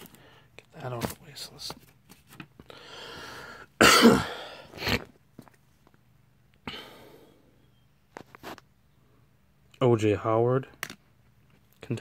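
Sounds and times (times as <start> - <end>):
man coughing: 3.8 - 5.1.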